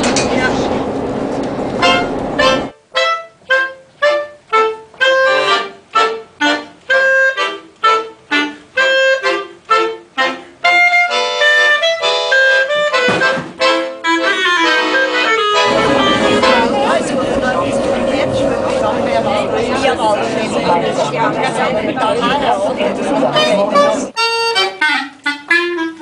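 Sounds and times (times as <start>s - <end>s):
clarinet: 1.8s - 18.0s, 23.1s - 26.0s
accordion: 1.8s - 26.0s.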